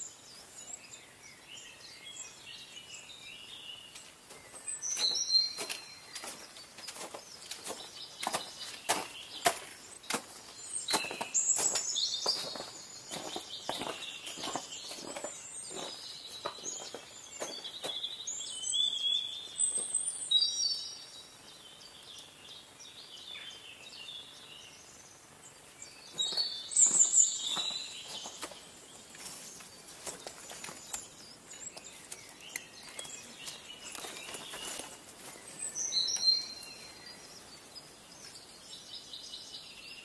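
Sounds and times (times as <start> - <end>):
small birds singing: 0.0 - 40.0
footsteps on icy snow: 4.2 - 18.2, 26.0 - 37.0.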